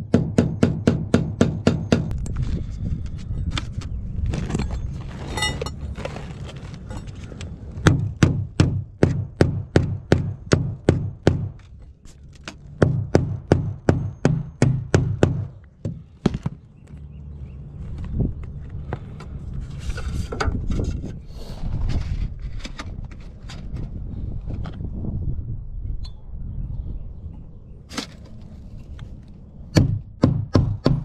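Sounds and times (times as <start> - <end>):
hammer striking on roof: 0.0 - 2.1, 7.8 - 11.6, 12.8 - 16.6, 29.7 - 31.0.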